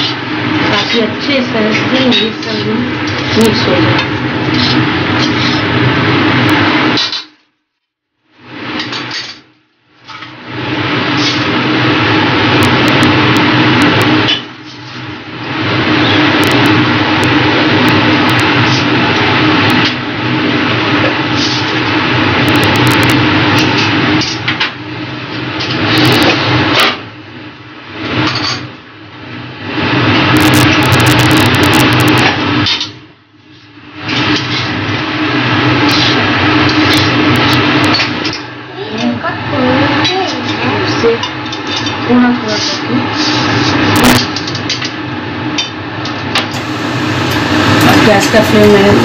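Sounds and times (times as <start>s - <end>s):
food sizzling in a pan: 46.6s - 49.0s.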